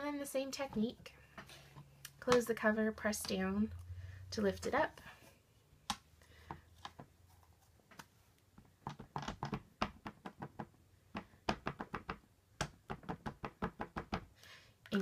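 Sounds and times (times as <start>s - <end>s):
ink pad tapping on stamps: 8.8s - 14.3s.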